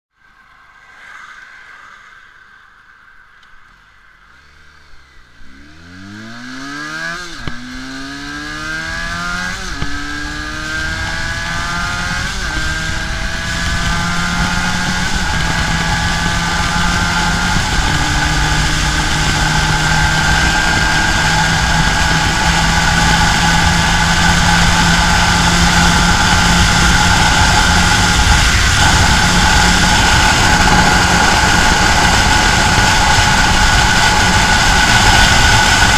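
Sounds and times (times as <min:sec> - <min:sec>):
motorcycle engine accelerating: 0:04.3 - 0:35.9
wind rush: 0:05.6 - 0:35.9.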